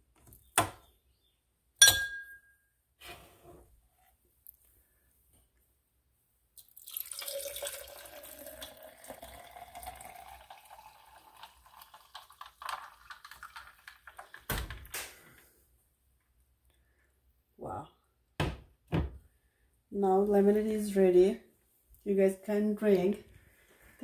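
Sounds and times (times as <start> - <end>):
liquid pouring into glass: 6.6 - 14.5.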